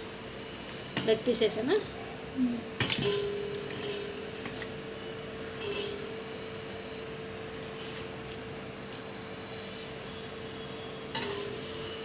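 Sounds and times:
steady hum: 0.0s - 12.0s
metal spoon scraping a pan: 5.4s - 6.1s, 10.8s - 12.0s.

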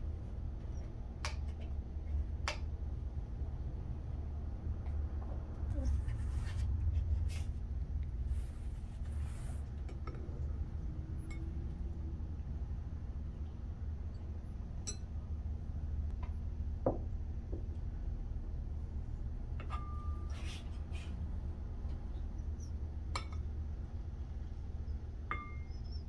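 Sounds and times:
steady low hum: 0.0s - 26.0s
light clink: 14.8s - 15.2s.

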